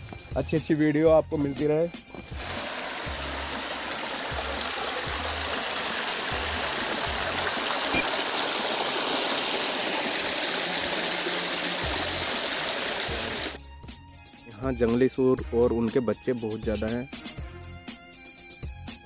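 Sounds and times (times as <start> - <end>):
stream rushing over rocks: 2.4 - 13.6.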